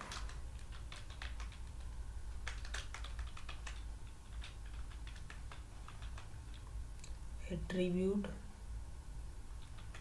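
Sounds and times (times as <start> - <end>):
keyboard typing: 0.0 - 6.6
low steady hum: 0.0 - 10.0.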